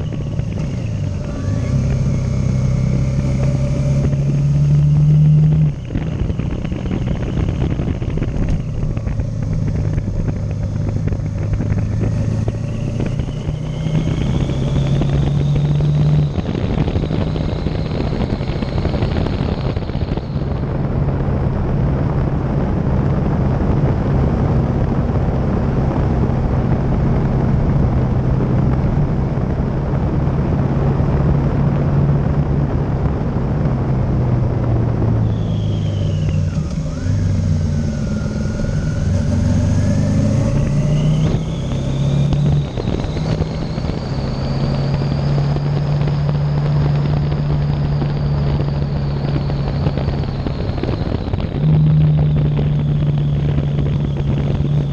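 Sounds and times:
faint high whine: 0:00.0 - 0:21.7, 0:35.1 - 0:54.9
motorcycle engine running: 0:00.0 - 0:54.9
wind and road noise: 0:00.0 - 0:54.9.

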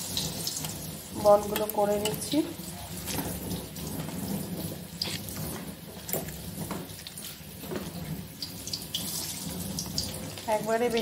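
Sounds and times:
wet mixture squelching: 0:00.7 - 0:10.6.

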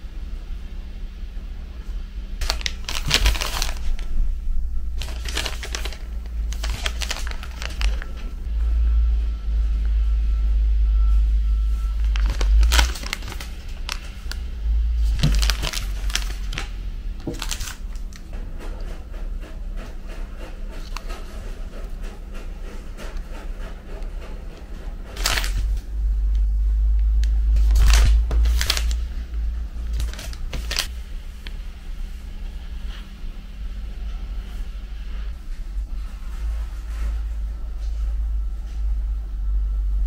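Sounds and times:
steady low rumble: 0:00.0 - 0:40.0
plastic and foil wrappers crinkling: 0:02.4 - 0:08.4, 0:11.8 - 0:18.3, 0:23.0 - 0:25.8, 0:27.1 - 0:30.9.

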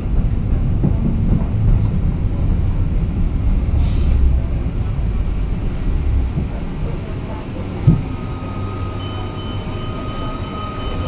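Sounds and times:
tram wheels rumbling: 0:00.0 - 0:11.0.

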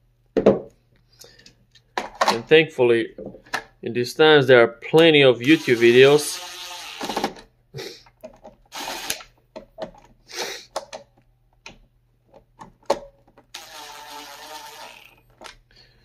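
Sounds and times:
cordless drill motor: 0:05.4 - 0:07.4, 0:08.7 - 0:09.3, 0:13.5 - 0:15.4.

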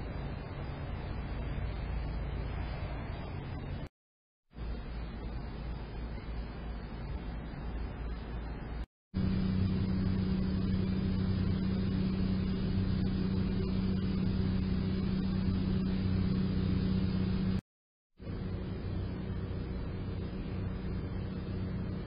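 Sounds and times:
low electrical motor hum: 0:00.0 - 0:03.9, 0:04.5 - 0:17.6, 0:18.2 - 0:22.0.

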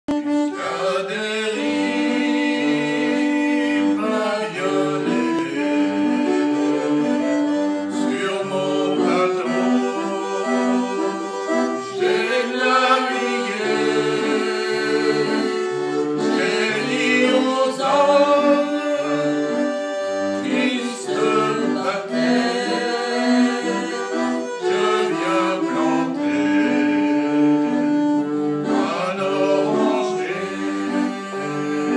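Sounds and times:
reed box organ playing a tune: 0:00.1 - 0:31.9.

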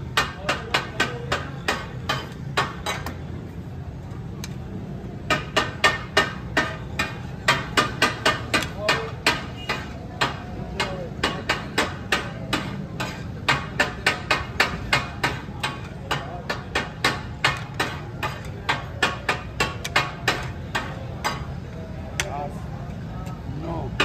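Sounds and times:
metal spatulas clattering on griddle: 0:05.4 - 0:21.6.

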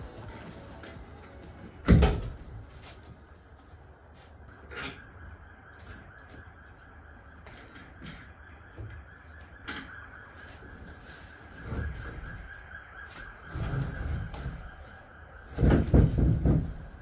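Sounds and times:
light wooden knocks and bumps: 0:14.2 - 0:17.0.

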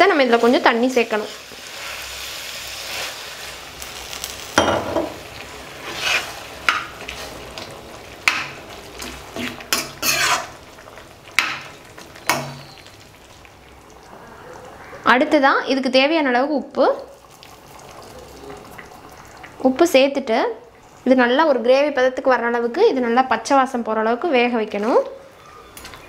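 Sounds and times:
faint sizzle: 0:00.0 - 0:26.0
ladle scraping metal pan: 0:05.8 - 0:06.4, 0:09.4 - 0:10.6.

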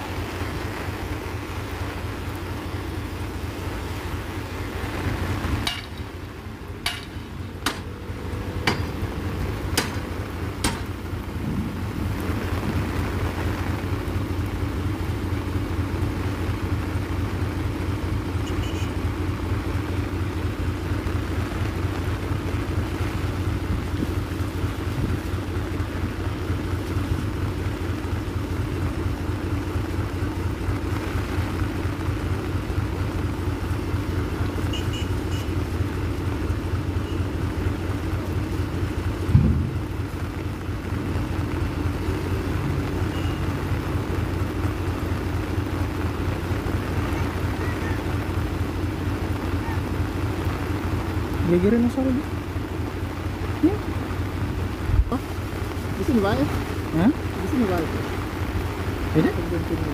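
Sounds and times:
diesel truck engine running: 0:00.0 - 0:59.9
sharp knocks: 0:05.6 - 0:06.0, 0:06.8 - 0:07.9, 0:08.6 - 0:09.0, 0:09.7 - 0:11.0, 0:39.3 - 0:39.9.

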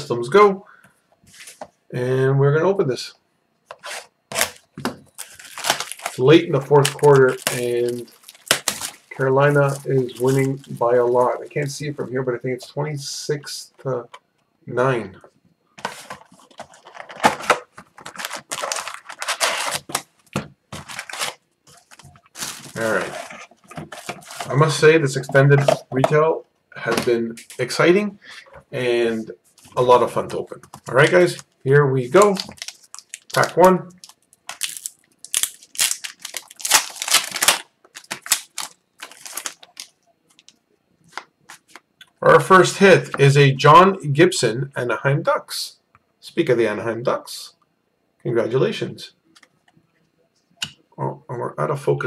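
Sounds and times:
wrappers rustling and crinkling: 0:03.8 - 0:11.7, 0:15.9 - 0:24.8, 0:29.5 - 0:41.8.

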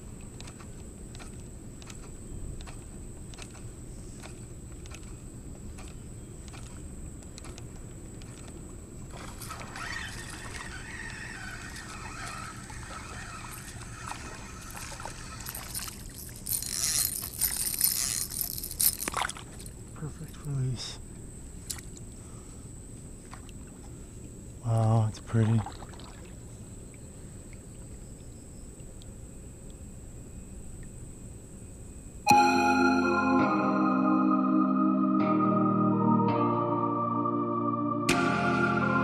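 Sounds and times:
spinning reel whirring: 0:09.4 - 0:19.1.

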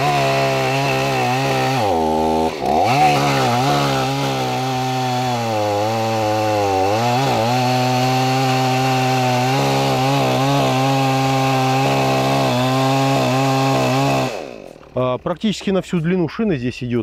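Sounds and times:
chainsaw cutting log: 0:00.0 - 0:15.0.

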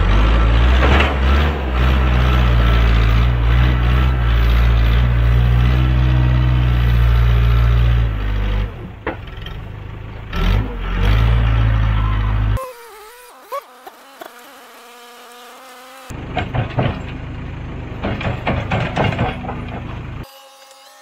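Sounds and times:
diesel engine running at high revs: 0:00.0 - 0:12.6, 0:16.0 - 0:20.2.

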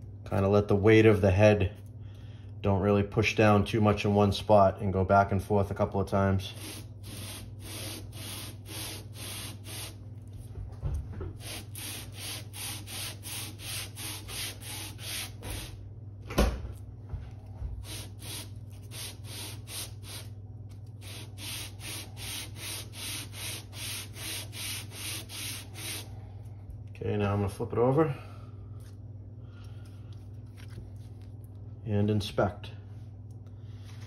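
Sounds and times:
metal rubbing on sandpaper: 0:06.6 - 0:10.0, 0:11.4 - 0:15.7.

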